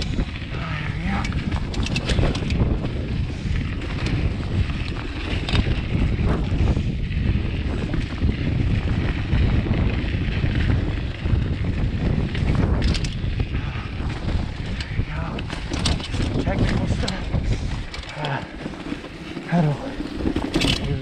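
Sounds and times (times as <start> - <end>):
bike clattering over bumps: 0.0 - 21.0
bike tyres rumbling on dirt trail: 0.0 - 21.0
wind buffeting microphone: 0.0 - 21.0.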